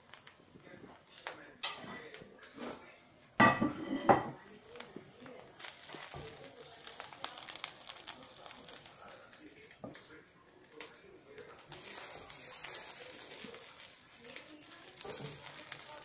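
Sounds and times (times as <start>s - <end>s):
spatula scraping frying pan: 3.6s - 4.2s.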